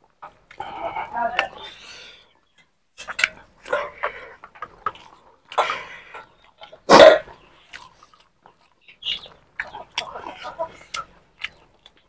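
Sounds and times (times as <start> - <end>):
mouth clicks while eating: 6.4 - 12.0.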